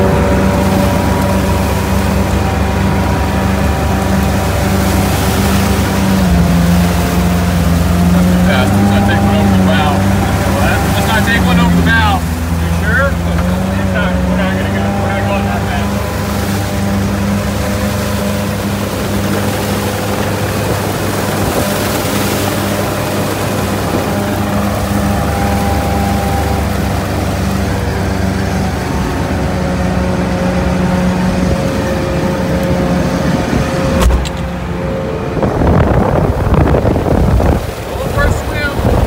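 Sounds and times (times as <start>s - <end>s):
diesel engine running: 0.0s - 39.0s
vehicle driving through water: 0.0s - 39.0s
sharp knock: 34.0s - 34.5s.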